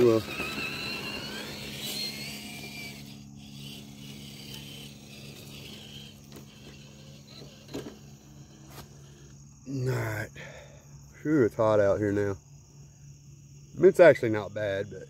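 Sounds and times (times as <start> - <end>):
rc car motor whirring: 0.0 - 9.6
crickets chirping: 0.0 - 15.0.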